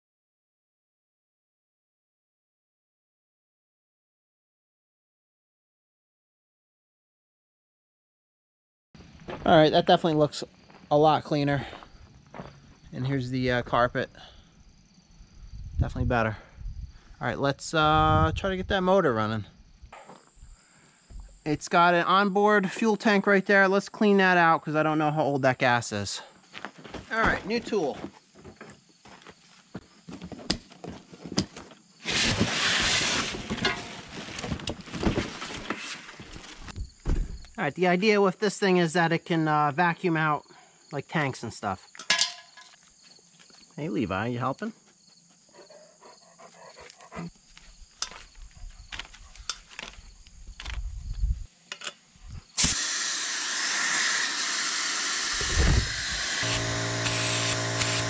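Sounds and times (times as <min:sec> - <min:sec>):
cardboard box pulled open: 0:32.0 - 0:36.6
foam and plastic bag rustling: 0:32.0 - 0:36.7
compressed air hissing: 0:52.5 - 0:58.0
packing straps snipped: 0:52.6 - 0:53.0.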